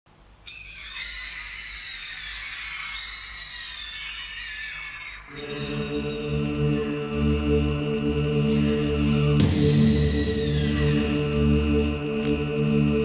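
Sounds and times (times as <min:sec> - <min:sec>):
low sustained chord: 0:05.4 - 0:13.0.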